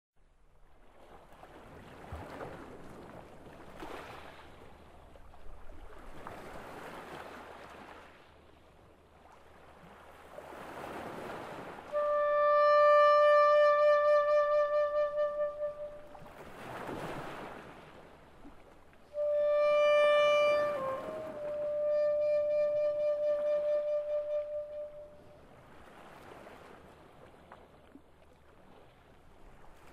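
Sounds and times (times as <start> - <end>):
sea waves washing in: 0.7 - 29.9
saxophone long held note: 11.9 - 16.3, 19.1 - 25.3.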